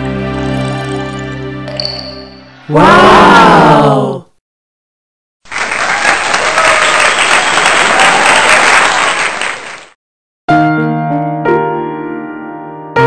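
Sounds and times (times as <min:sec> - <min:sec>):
piano: 0:00.0 - 0:02.7, 0:10.5 - 0:13.0
crowd applauding: 0:05.4 - 0:10.0.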